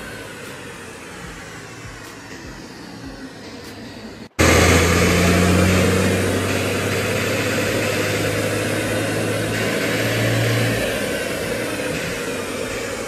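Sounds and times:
diesel engine running under load: 0:00.0 - 0:13.0
rush of dyno and airflow: 0:00.0 - 0:13.0.

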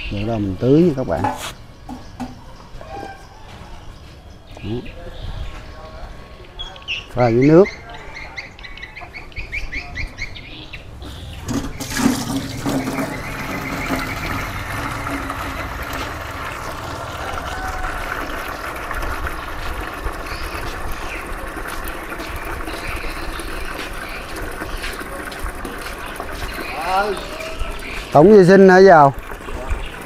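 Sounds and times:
water running into a container: 0:11.1 - 0:30.0.

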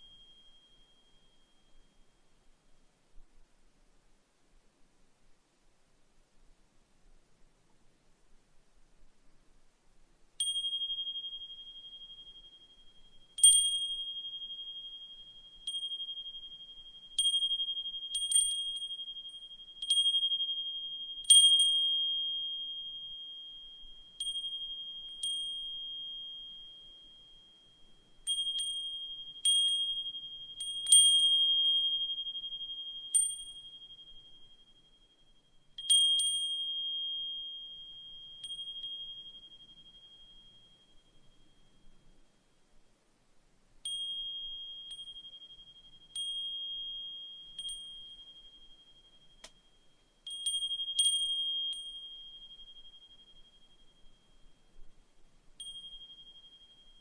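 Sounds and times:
wind chime ringing: 0:55.6 - 0:57.0.

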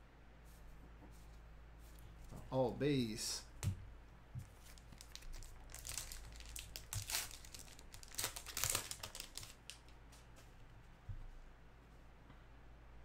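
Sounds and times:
plastic wrapper crinkling and tearing: 0:04.5 - 0:10.0.

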